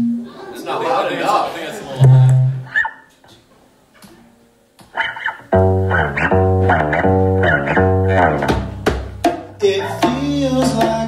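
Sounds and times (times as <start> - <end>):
acoustic guitar strumming: 2.0 - 3.1, 4.2 - 11.0.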